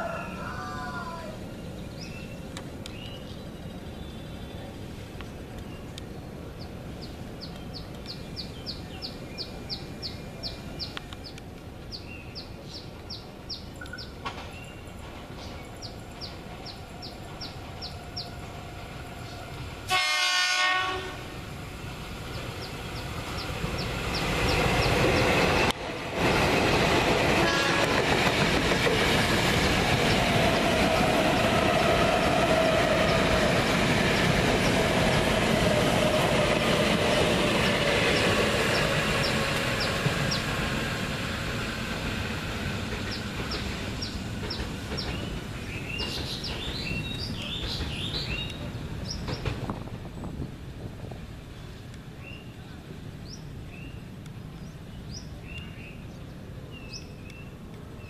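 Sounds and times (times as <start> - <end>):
train wheel and rail noise: 0.0 - 58.0
train horn: 19.8 - 21.4, 27.4 - 28.1.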